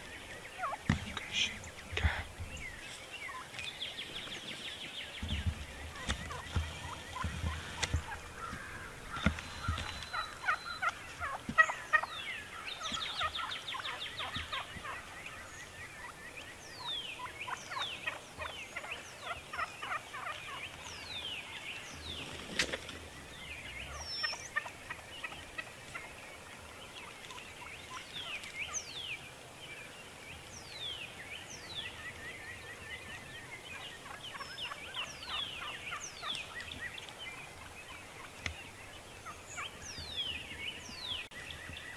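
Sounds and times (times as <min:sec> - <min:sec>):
turkey gobbling: 0:00.5 - 0:02.0, 0:02.8 - 0:03.6, 0:05.3 - 0:16.2, 0:17.2 - 0:20.9, 0:23.7 - 0:28.5, 0:33.8 - 0:38.5.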